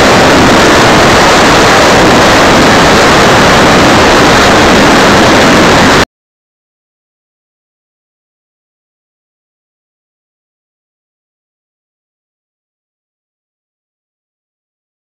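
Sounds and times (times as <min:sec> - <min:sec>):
rushing roar of wind and fans: 0:00.0 - 0:06.1.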